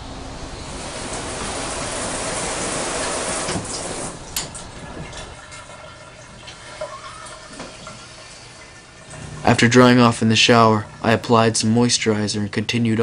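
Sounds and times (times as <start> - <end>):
shower spray running: 0.2 - 5.3.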